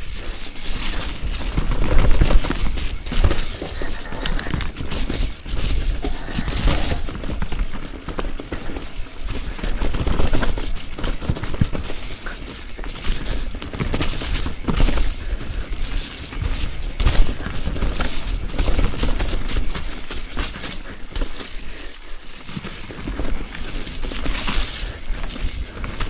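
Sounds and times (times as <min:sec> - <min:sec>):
bike knocking and rattling: 0:00.0 - 0:26.0
bike tyres on dirt: 0:00.0 - 0:26.0.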